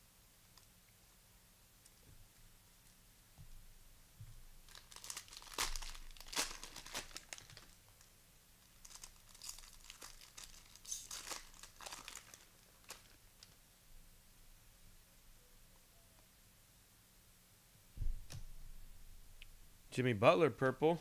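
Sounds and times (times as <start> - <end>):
plastic wrapper tearing and crinkling: 4.7 - 8.0, 8.7 - 13.6.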